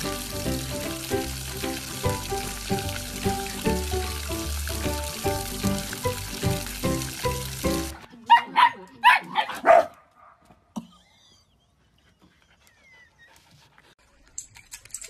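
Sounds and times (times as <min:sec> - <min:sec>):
dog barking: 0:08.3 - 0:10.4.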